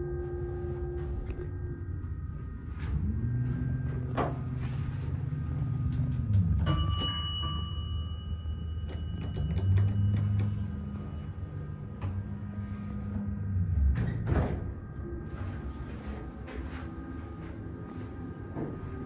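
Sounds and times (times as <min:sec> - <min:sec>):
elevator door motor humming: 0:00.0 - 0:19.0
elevator chime: 0:03.2 - 0:13.0.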